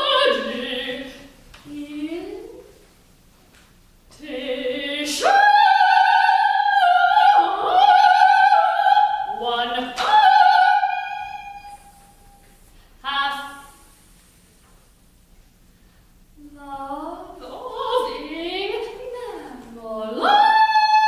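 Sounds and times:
soprano singing operatic: 0:00.0 - 0:02.6, 0:04.1 - 0:11.9, 0:16.4 - 0:21.0.

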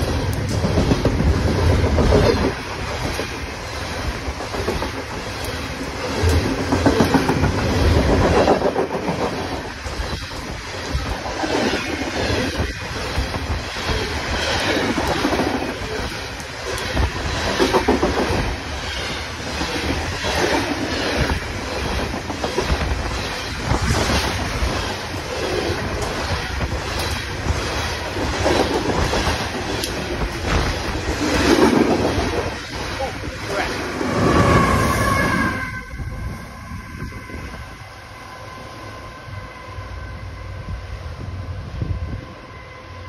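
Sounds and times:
wheels clacking over rail joints: 0:00.0 - 0:33.8
train wheels rumbling on rail: 0:00.0 - 0:43.0.

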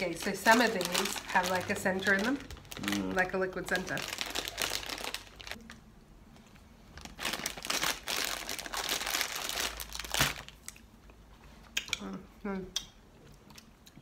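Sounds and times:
plastic packet crinkling: 0:00.0 - 0:05.7, 0:07.0 - 0:10.6.

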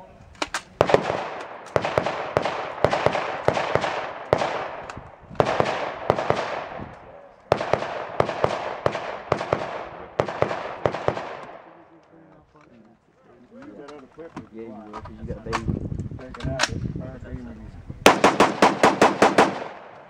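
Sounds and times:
rifle shots with echo: 0:00.4 - 0:12.0, 0:18.0 - 0:20.0.

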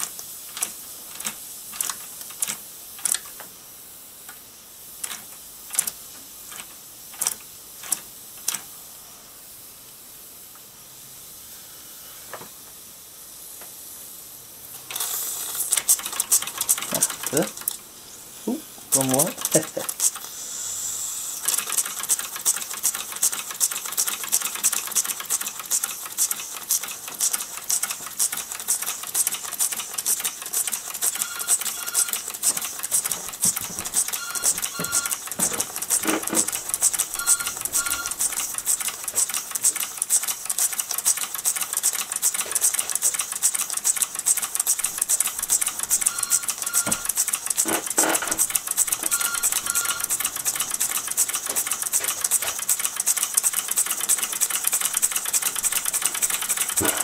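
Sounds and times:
model steam engine ticking clatter: 0:14.9 - 0:17.8, 0:18.9 - 0:20.3, 0:21.4 - 0:57.0
telephone ringing: 0:31.1 - 0:32.3, 0:33.4 - 0:38.6, 0:45.8 - 0:47.2, 0:48.4 - 0:50.9.

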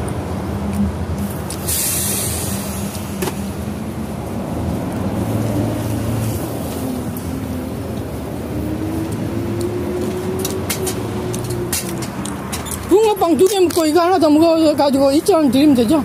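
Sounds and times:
low street rumble: 0:00.0 - 0:16.0
short sharp hiss: 0:01.6 - 0:03.2.

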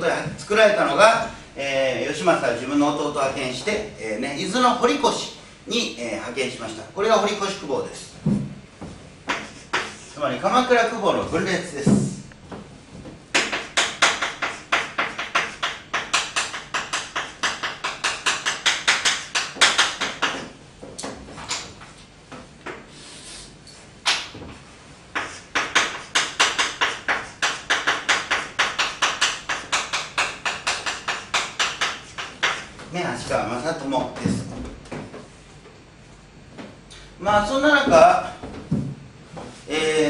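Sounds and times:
chalk tapping and scraping on blackboard: 0:09.2 - 0:10.2, 0:13.3 - 0:21.9, 0:25.1 - 0:32.8.

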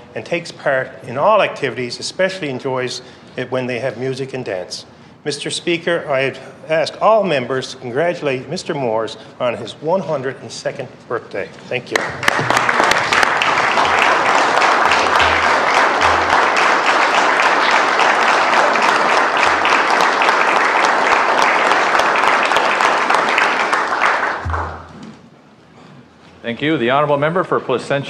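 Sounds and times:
loud sustained clapping: 0:11.9 - 0:25.3.

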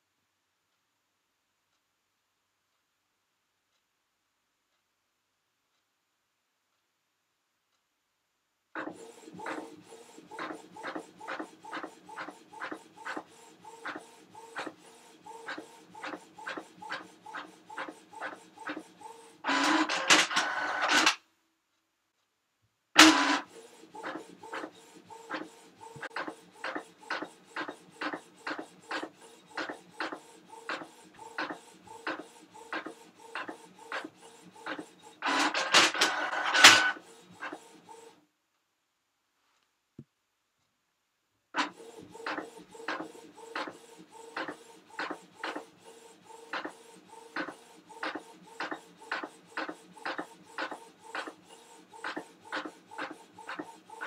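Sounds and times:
printer noisy burst: 0:08.8 - 0:21.2, 0:23.0 - 0:25.4, 0:26.1 - 0:37.6
printer clicking: 0:19.5 - 0:21.2, 0:34.6 - 0:37.0.

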